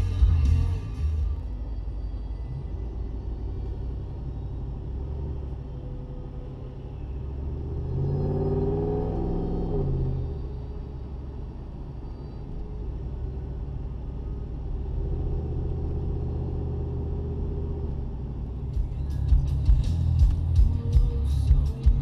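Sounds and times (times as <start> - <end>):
music: 0.0 - 4.6, 18.6 - 22.0
car engine drone inside cabin: 0.0 - 22.0.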